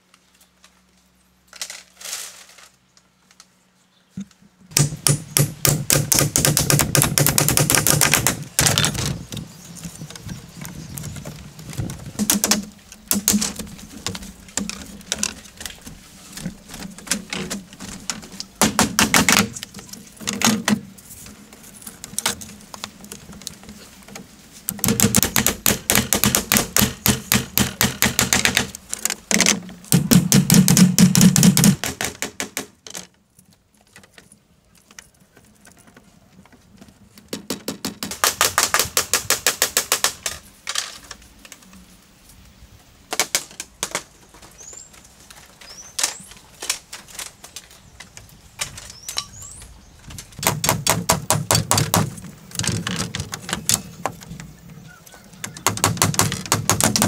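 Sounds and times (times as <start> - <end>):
bird chirping: 3.5 - 4.2, 9.0 - 11.3, 45.6 - 46.4, 47.4 - 50.2, 53.4 - 55.8
hand tool knocking on bamboo: 24.7 - 28.7, 29.3 - 32.7, 50.4 - 52.1, 55.4 - 57.0.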